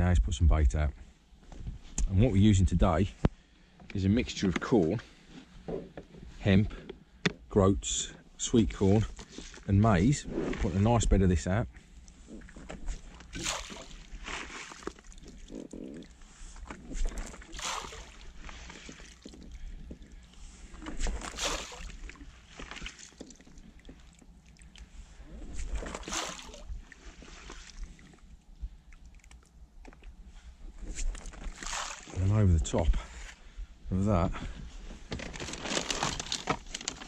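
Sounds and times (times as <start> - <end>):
bait splashing onto water: 13.2 - 15.4, 17.0 - 19.4, 20.9 - 24.2, 25.7 - 26.8, 31.2 - 32.2.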